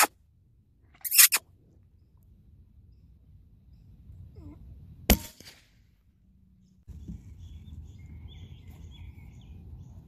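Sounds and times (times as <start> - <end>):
rifle shot: 5.1 - 5.8.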